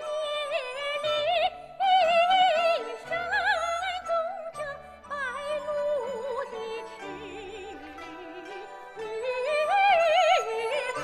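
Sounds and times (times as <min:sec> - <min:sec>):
traditional orchestra: 0:00.0 - 0:11.0
woman singing operatically: 0:00.0 - 0:11.0.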